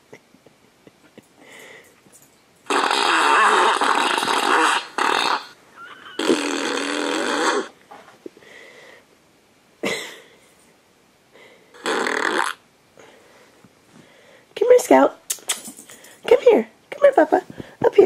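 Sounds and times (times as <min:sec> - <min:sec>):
whoopee cushion fart sound: 0:02.7 - 0:07.8, 0:11.8 - 0:12.6.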